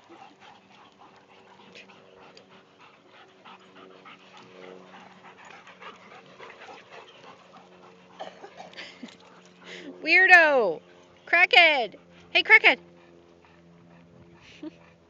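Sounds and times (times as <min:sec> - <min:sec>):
dogs sniffing: 0:00.0 - 0:10.0
dogs scratching in dirt: 0:00.0 - 0:11.3
dogs panting: 0:00.0 - 0:15.0.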